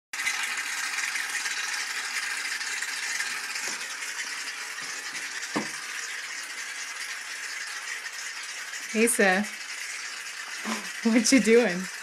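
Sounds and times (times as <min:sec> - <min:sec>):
aerosol foam spraying hiss: 0:10.6 - 0:10.9.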